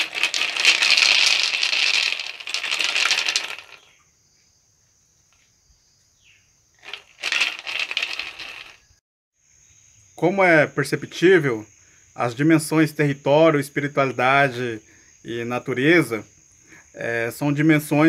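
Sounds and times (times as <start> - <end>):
gourd rattle shaken fast: 0.0 - 3.9, 6.8 - 8.9.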